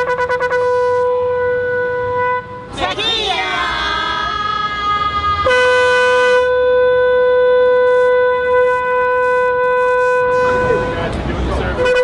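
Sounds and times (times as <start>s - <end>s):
shofar blast: 0.0s - 2.7s, 4.5s - 11.0s.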